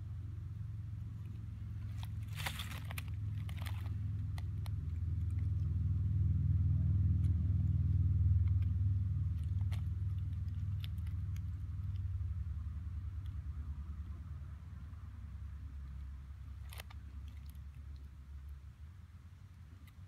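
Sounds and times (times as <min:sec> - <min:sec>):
distant engine rumble: 0:00.0 - 0:20.0
dry leaf litter crackling: 0:01.2 - 0:05.5.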